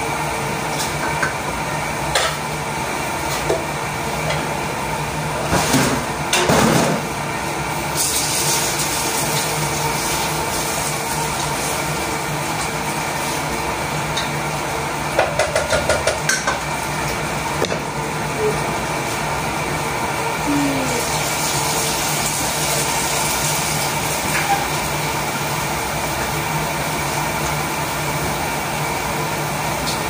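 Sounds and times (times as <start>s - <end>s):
range hood fan humming: 0.0s - 30.0s
utensil knocking against pan: 15.2s - 16.6s.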